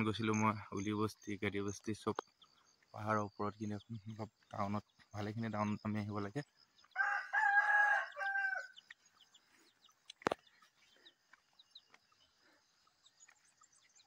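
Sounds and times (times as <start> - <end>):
faint high chirping: 0.0 - 14.0
rooster crowing: 6.9 - 8.8.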